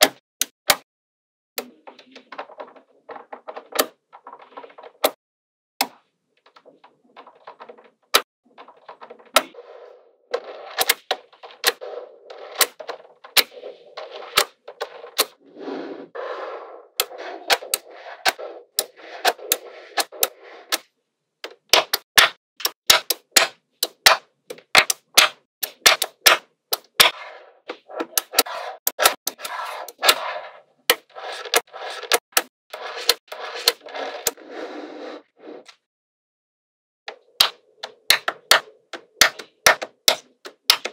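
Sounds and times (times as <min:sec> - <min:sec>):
balls rolling rattle: 0:06.4 - 0:15.3
sharp clicks of balls set in place: 0:17.0 - 0:30.2, 0:37.1 - 0:40.9.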